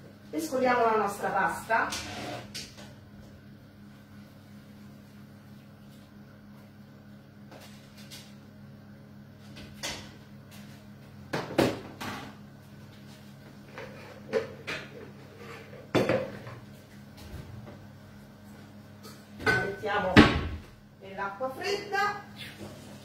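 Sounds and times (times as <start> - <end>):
kitchenware clattering: 19.1 - 20.0.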